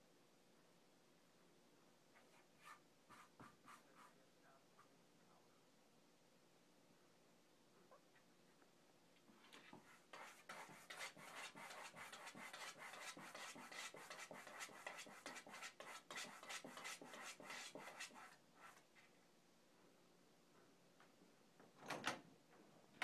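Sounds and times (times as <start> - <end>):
cat scratching wooden door: 9.7 - 18.3.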